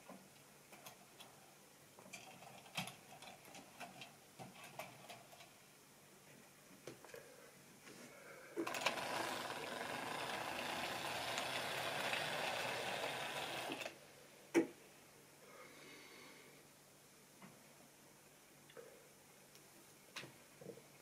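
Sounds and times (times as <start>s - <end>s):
model train whirring and rattling: 8.6s - 13.9s.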